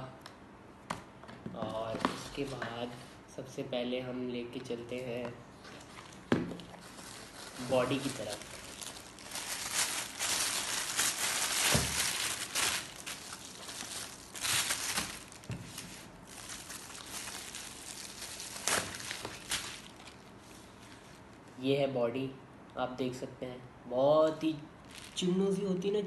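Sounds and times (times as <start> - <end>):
plastic bag and bubble wrap crinkling: 4.6 - 21.4, 24.8 - 25.7.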